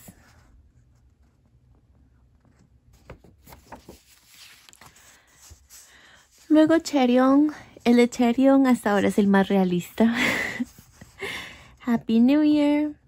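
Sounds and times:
paper cards rustling and tapping: 2.4s - 5.8s.

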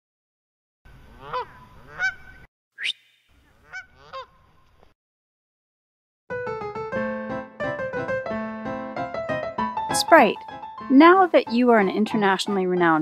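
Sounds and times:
goose honking: 1.2s - 2.4s, 3.6s - 4.4s
short rising whistle: 2.8s - 3.3s
electric piano theme tune: 6.3s - 13.0s.

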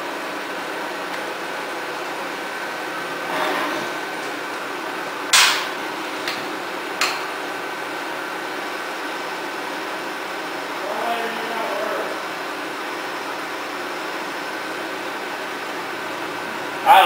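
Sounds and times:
milling machine humming: 0.0s - 17.0s
sharp metallic knocks: 5.3s - 5.8s.

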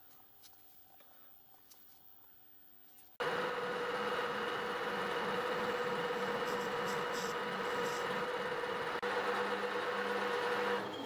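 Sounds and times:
metal lathe motor hum: 3.2s - 11.0s.

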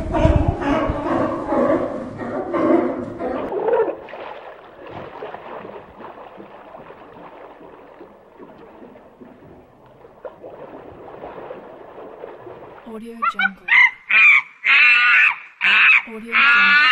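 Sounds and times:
water lapping and gurgling: 3.0s - 13.7s
penguin braying call: 13.2s - 16.9s.

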